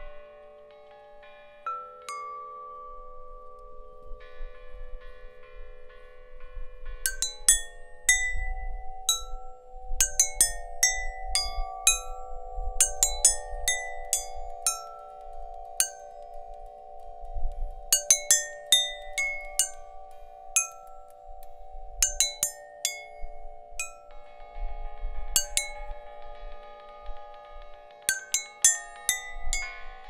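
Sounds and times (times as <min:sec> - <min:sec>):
chimes ringing: 0:00.0 - 0:30.0.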